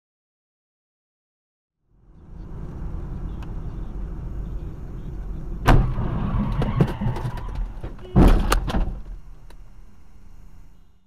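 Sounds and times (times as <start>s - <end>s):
car engine and road noise: 1.8s - 11.0s
loud bang: 5.6s - 7.2s.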